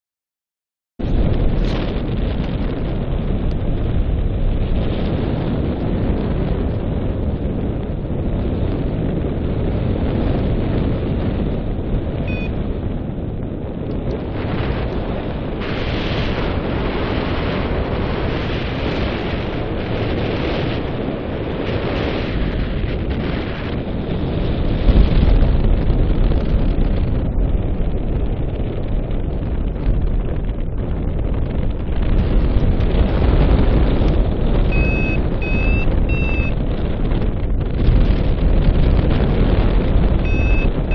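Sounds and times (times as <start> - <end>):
airflow buffeting microphone: 1.0 - 40.9
short high beeps: 12.3 - 12.6, 34.7 - 36.6, 40.2 - 40.9.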